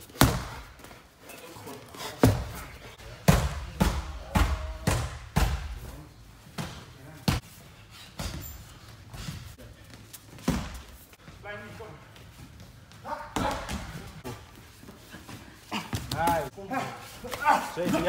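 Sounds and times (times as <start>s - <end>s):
punches thudding on pads: 0.1s - 0.8s, 3.2s - 5.9s.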